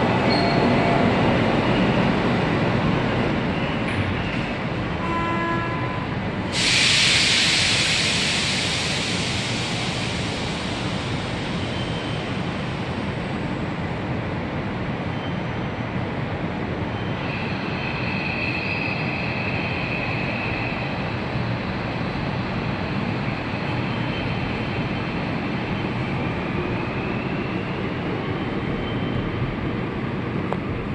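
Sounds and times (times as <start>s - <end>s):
train rumble: 0.0s - 30.9s
burst of hissing air: 6.5s - 11.6s.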